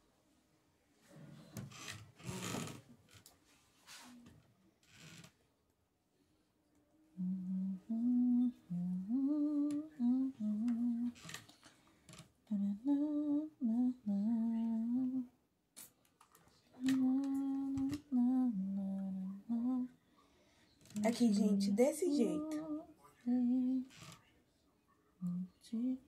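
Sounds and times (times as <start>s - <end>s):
woman humming: 7.1s - 11.2s, 12.5s - 15.3s, 16.8s - 19.9s, 21.0s - 23.9s, 25.2s - 26.0s.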